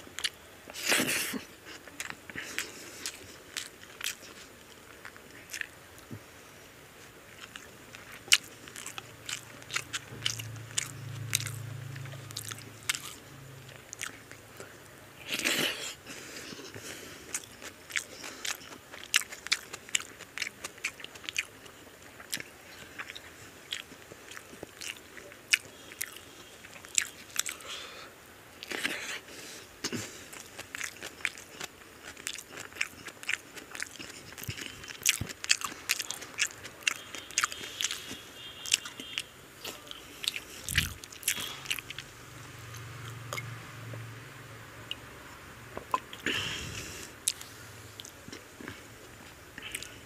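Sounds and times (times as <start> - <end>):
wet chewing sounds: 0.1 - 6.2, 7.0 - 27.8, 28.6 - 44.1, 45.8 - 50.0
low hum: 9.0 - 15.2.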